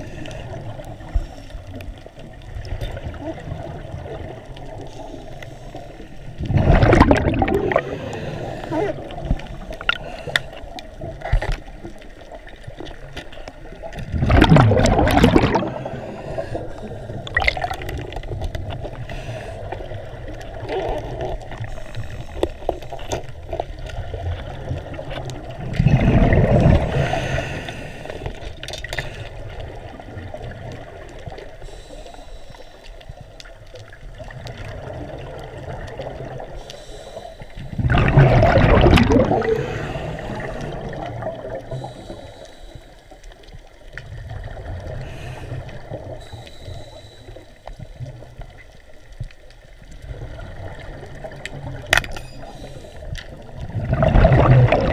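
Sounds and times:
underwater hiss: 0:04.7 - 0:10.8, 0:13.4 - 0:20.3, 0:21.5 - 0:23.1, 0:25.8 - 0:30.0, 0:31.2 - 0:33.3, 0:36.4 - 0:43.6, 0:44.8 - 0:48.2, 0:52.2 - 0:54.9
gushing water surges: 0:06.4 - 0:10.3, 0:13.7 - 0:16.7, 0:53.5 - 0:54.9.

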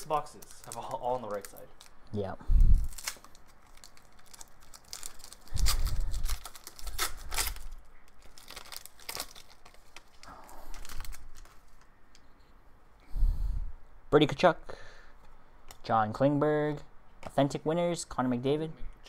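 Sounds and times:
foil wrapper tearing and crinkling: 0:00.0 - 0:02.0, 0:02.8 - 0:11.9.

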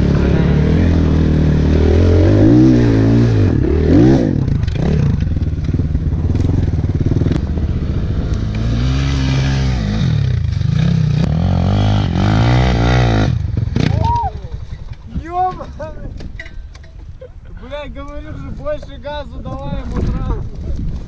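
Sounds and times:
dirt bike engine revving: 0:00.0 - 0:14.7.

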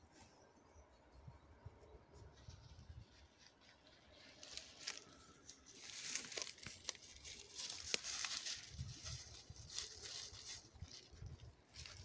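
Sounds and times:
footsteps through dry leaves: 0:02.6 - 0:12.0.

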